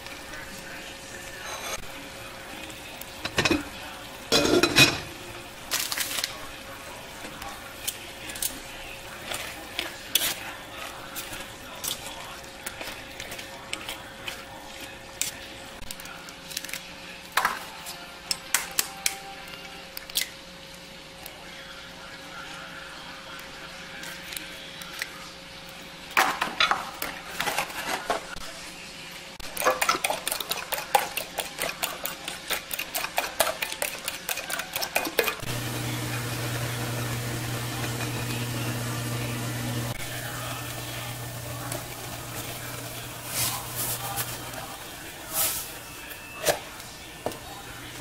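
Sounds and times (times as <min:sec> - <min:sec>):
utensil clicking against dishes: 0:29.4 - 0:35.5
low motor hum: 0:35.5 - 0:44.6.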